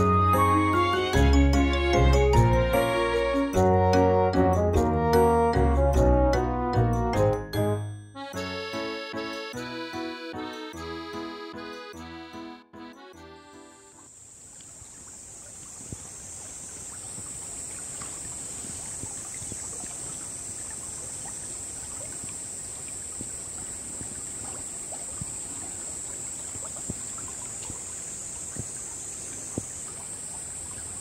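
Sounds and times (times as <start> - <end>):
steady high-pitched hiss: 13.5 - 31.0
stream babbling over stones: 14.2 - 31.0.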